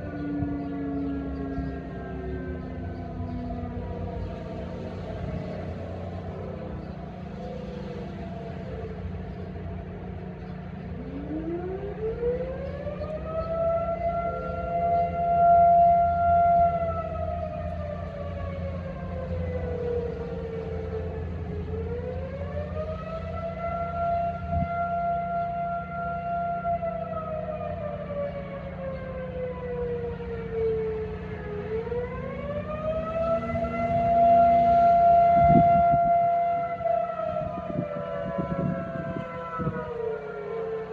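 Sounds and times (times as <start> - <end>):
distant sirens: 0.0 - 40.9
warning siren winding up: 30.6 - 40.9.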